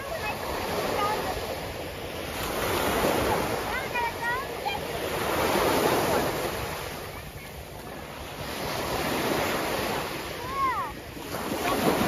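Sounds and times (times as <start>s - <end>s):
ocean surf washing ashore: 0.0s - 12.0s.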